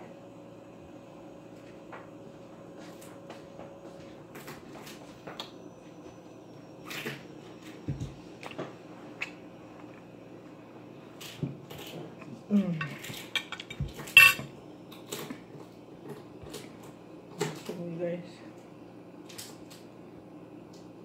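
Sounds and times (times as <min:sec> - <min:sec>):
spoon clinking on a plate: 0:13.4 - 0:14.4.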